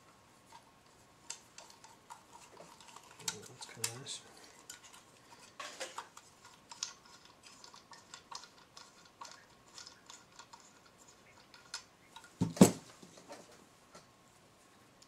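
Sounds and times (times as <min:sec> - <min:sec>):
small clicks and metal rattles: 0:00.5 - 0:12.5.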